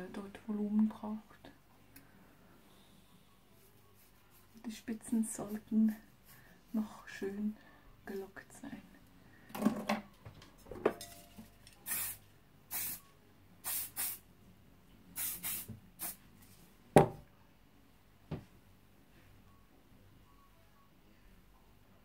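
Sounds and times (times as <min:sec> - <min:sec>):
aerosol spray hisses: 0:11.8 - 0:13.0, 0:13.6 - 0:14.2, 0:15.2 - 0:16.2.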